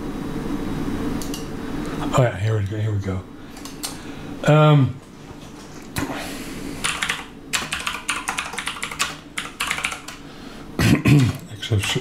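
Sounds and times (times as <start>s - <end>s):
typing on computer keyboard: 6.8s - 10.2s.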